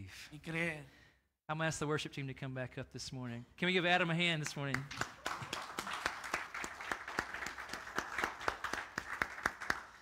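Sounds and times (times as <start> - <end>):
crowd applauding: 4.7 - 10.0.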